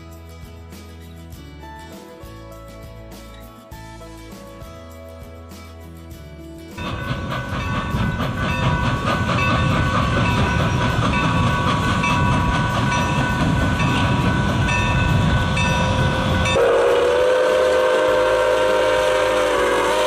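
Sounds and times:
locomotive bell ringing: 0:06.8 - 0:17.3
steam locomotive rumble: 0:06.8 - 0:20.0
steam whistle blowing: 0:15.5 - 0:20.0.

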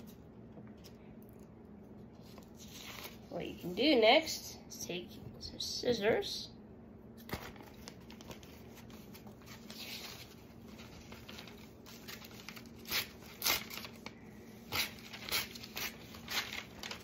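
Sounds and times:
paper crinkling and rustling: 0:02.1 - 0:03.6, 0:07.2 - 0:17.0
paper ripping: 0:07.3 - 0:14.1, 0:14.7 - 0:17.0.

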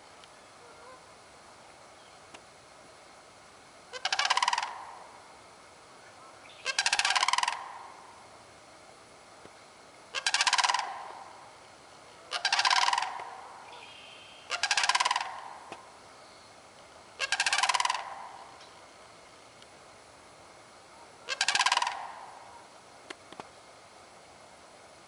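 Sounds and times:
cranes rattling calls: 0:03.9 - 0:05.2, 0:06.5 - 0:08.2, 0:10.1 - 0:11.5, 0:12.3 - 0:15.9, 0:17.2 - 0:18.6, 0:21.2 - 0:22.6.

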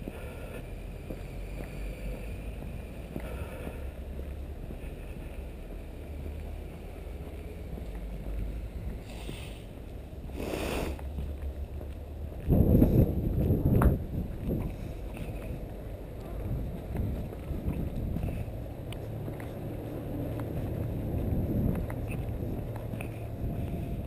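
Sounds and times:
wind buffeting microphone: 0:11.1 - 0:24.0.

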